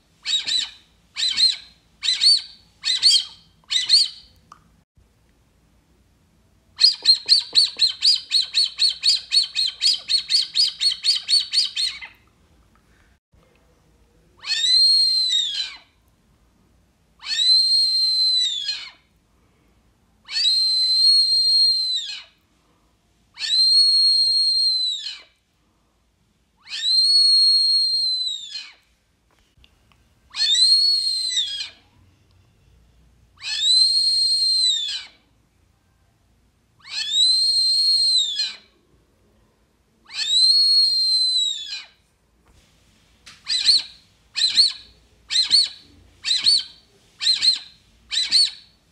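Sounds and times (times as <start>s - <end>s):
bird lure call whistles: 0.2s - 4.3s, 6.8s - 12.1s, 30.4s - 31.8s, 43.4s - 48.8s.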